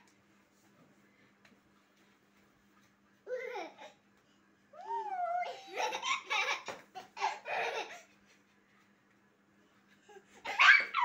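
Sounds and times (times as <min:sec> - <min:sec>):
baby giggling: 0:05.4 - 0:08.1.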